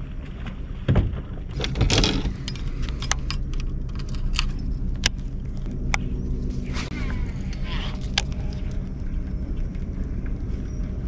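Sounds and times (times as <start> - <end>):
steady low rumble: 0.0 - 11.0
fishing tackle clicking and rattling: 1.6 - 5.3.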